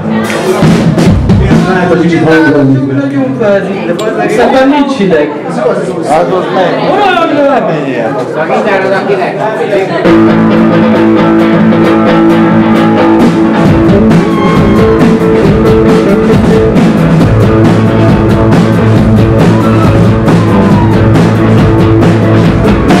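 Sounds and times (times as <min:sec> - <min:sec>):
crashing drums and cymbals: 0:00.2 - 0:02.0, 0:13.1 - 0:23.0.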